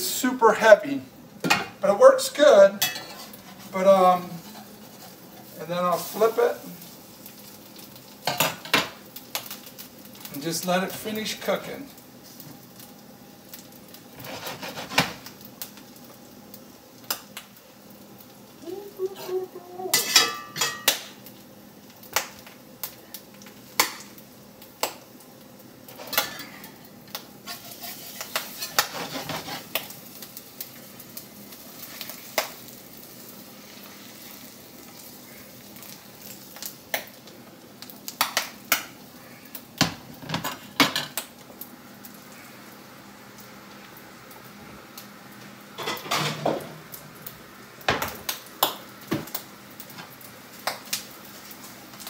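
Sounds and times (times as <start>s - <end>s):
frying sizzle: 0.0s - 52.0s
metal spatula scraping skillet: 2.8s - 5.5s, 14.2s - 15.2s, 27.4s - 29.8s.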